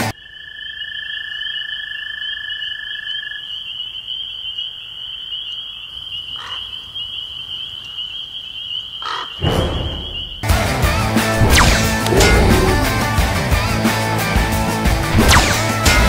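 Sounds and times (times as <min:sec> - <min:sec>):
night insects chirping: 0:00.1 - 0:10.5.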